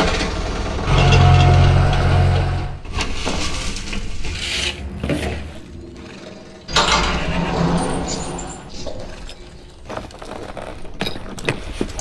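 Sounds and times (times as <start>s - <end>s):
loud wooden rubbing: 0.7s - 2.9s.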